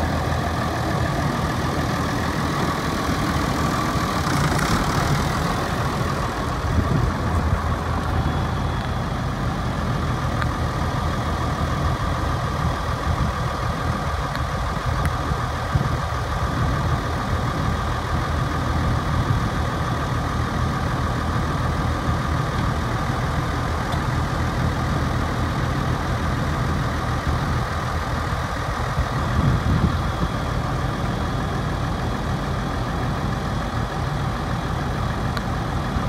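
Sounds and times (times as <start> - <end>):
tractor diesel engine idling: 0.0 - 36.0.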